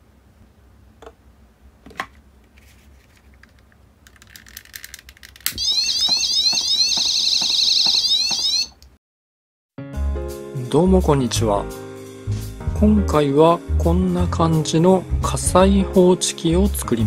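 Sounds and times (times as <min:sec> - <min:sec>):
electronic alarm siren: 0:05.5 - 0:08.8.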